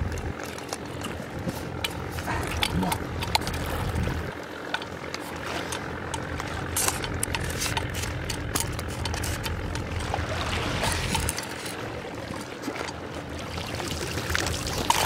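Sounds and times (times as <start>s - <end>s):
sharp clicks and ticks: 0.0s - 10.2s
engine humming: 0.0s - 15.0s.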